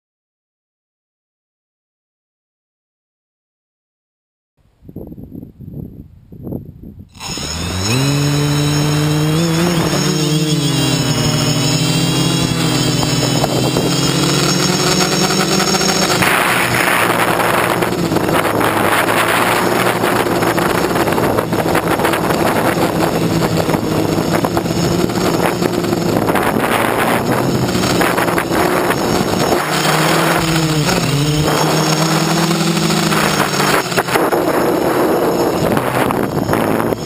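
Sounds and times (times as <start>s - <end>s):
wind noise on microphone: 4.6s - 37.0s
quadcopter motors and propellers: 7.1s - 37.0s.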